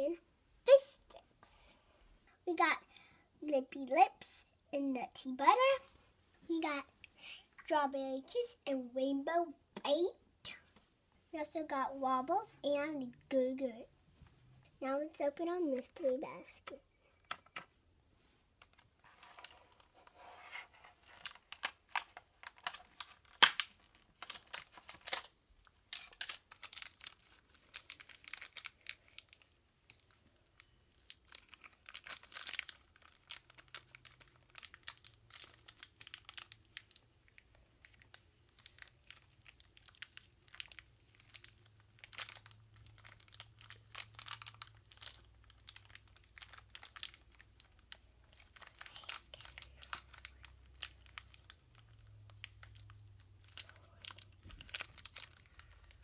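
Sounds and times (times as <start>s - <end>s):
plastic wrapper crinkling: 18.6s - 20.3s, 20.9s - 56.0s.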